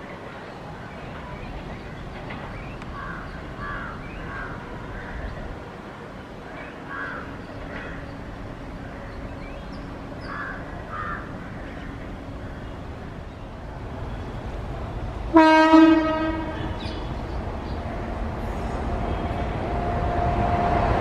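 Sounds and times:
distant train rumble: 0.0s - 21.0s
bird calls: 6.5s - 13.5s, 16.4s - 18.0s
locomotive horn blast: 15.3s - 16.8s.

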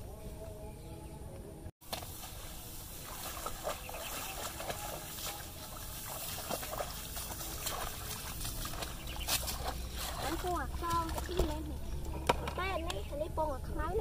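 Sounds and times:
grass swishing: 1.8s - 11.0s
water splashing underfoot: 1.8s - 13.4s
soft footsteps: 1.9s - 12.2s.

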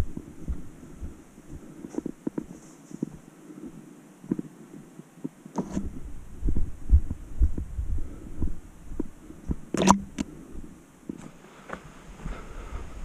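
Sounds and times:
sharp click: 9.8s - 10.3s.

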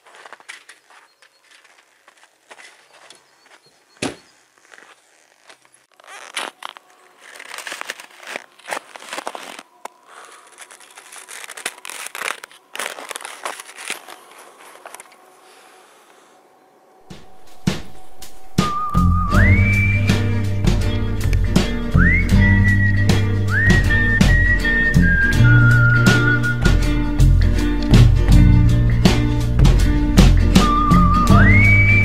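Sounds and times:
skis crunching and scraping on snow: 0.0s - 16.4s, 17.0s - 19.5s.

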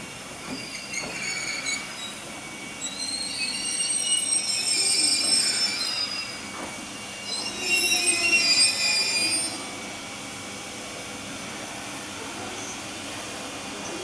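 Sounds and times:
train brakes squealing: 0.0s - 9.9s.

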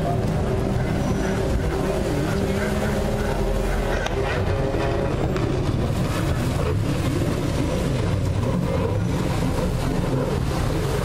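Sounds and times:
jet ski engine droning: 0.0s - 11.0s.

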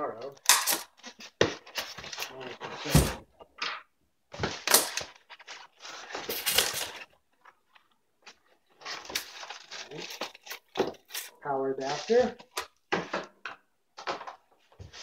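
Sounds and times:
foam rubbing and scraping: 11.8s - 12.4s.

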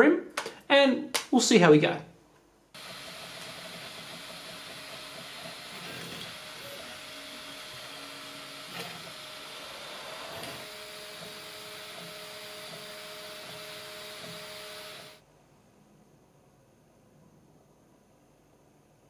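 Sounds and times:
motor whine: 2.8s - 15.2s.

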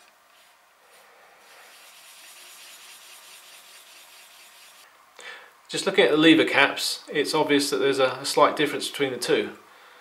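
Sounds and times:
steel wool scrubbing metal: 1.5s - 4.9s.

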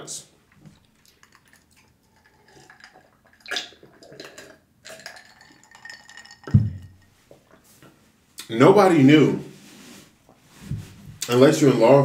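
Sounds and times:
man drinking: 0.5s - 7.6s
water sloshing in glass: 0.7s - 7.1s
deep thump: 6.5s - 6.9s.

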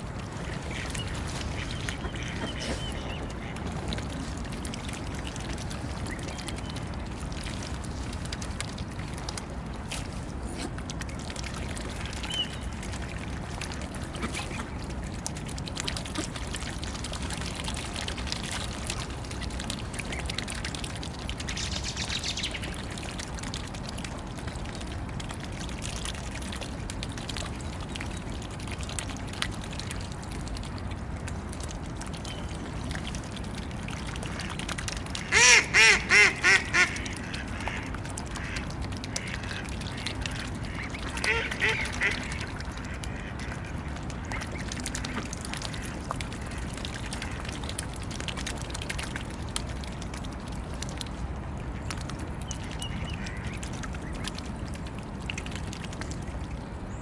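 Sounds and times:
birds splashing in water: 0.0s - 57.0s
duck quacking loudly: 35.3s - 36.9s.

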